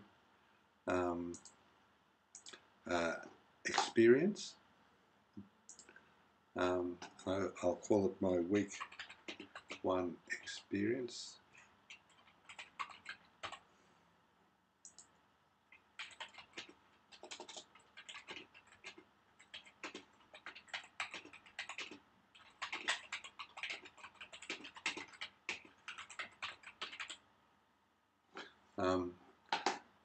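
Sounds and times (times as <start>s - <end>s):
typing on computer keyboard: 8.6s - 9.8s, 11.9s - 13.6s, 15.7s - 27.2s, 29.5s - 29.8s.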